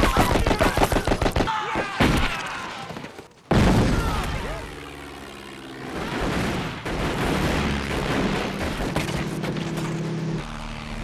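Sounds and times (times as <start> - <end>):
biplane engine drone: 4.1 - 11.0.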